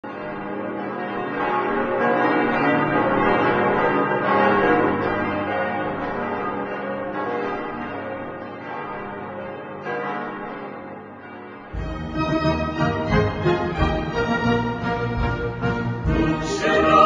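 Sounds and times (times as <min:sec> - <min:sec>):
bells ringing in a peal: 0:00.0 - 0:17.0.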